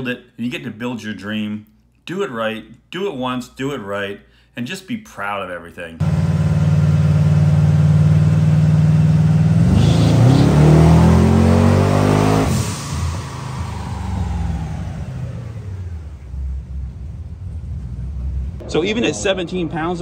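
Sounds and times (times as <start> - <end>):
car engine on dyno: 6.0 - 18.6
dyno rollers coasting: 9.8 - 20.0.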